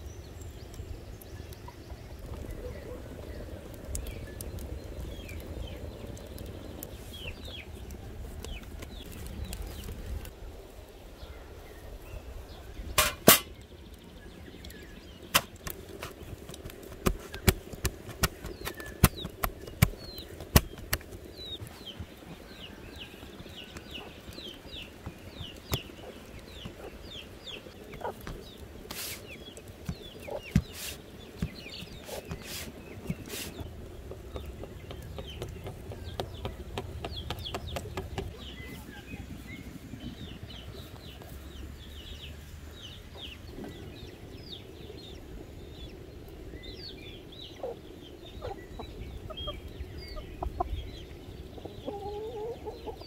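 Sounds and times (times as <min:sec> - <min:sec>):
small birds chirping: 0:00.0 - 0:53.0
hens clucking: 0:23.8 - 0:38.3, 0:51.5 - 0:53.0.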